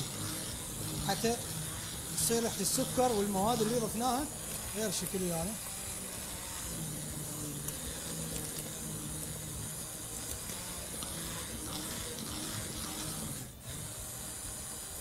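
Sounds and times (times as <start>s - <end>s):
hand blender whirring: 0.0s - 15.0s.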